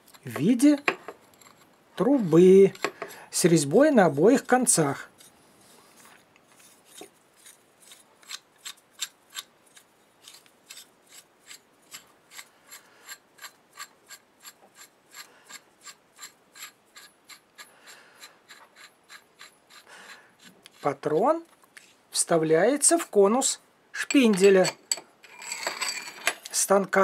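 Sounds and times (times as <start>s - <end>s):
metal threads rasping: 0.0s - 3.3s, 6.9s - 21.2s, 24.1s - 26.4s.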